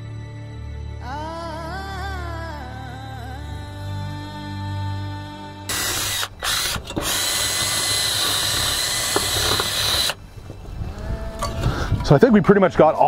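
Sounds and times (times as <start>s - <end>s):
drill spinning wire brush on metal: 5.7s - 10.2s.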